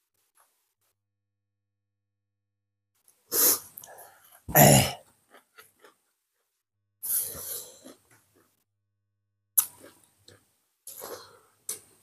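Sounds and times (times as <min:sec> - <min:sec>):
person coughing and clearing throat: 0:04.5 - 0:05.0
faint mouth clicks: 0:09.6 - 0:11.9.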